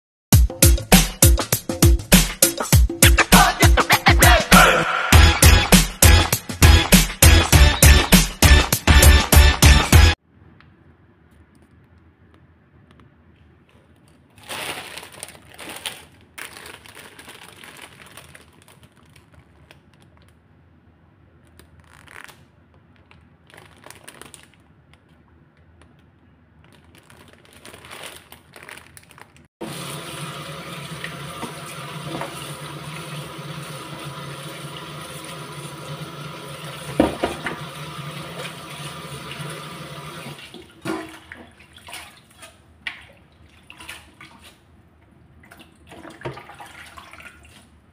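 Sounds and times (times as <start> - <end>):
plastic bag crinkling: 13.6 - 20.5, 21.4 - 25.2, 26.4 - 29.5
water splashes: 29.6 - 44.6, 45.4 - 47.8
tap running into bowl: 36.8 - 37.7.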